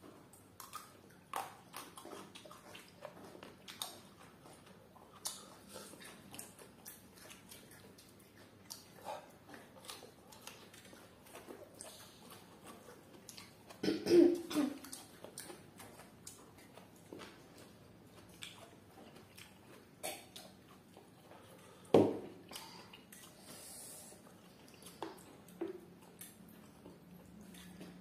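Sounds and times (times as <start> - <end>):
lip smacks and chewing clicks: 0.2 - 13.8, 14.4 - 23.5, 24.2 - 28.0
loud coughs: 13.8 - 14.8.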